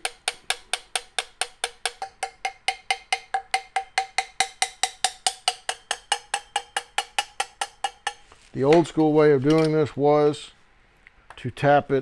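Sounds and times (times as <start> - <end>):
hammer tapping on brass tube: 0.0 - 8.3.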